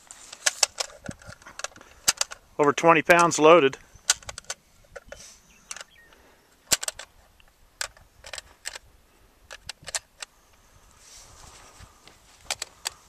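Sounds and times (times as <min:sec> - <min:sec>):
metallic clicks of loading ammunition: 0:00.3 - 0:08.9, 0:09.5 - 0:10.3, 0:12.4 - 0:13.0.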